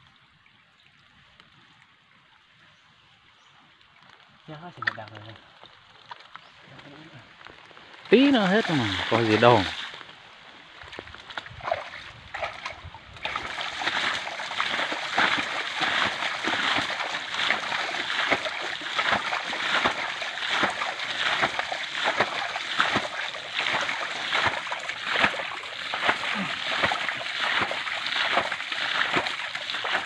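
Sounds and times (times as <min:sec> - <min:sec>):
water splashing as bailed by hand: 0:04.7 - 0:06.4, 0:07.6 - 0:10.1, 0:10.8 - 0:30.0.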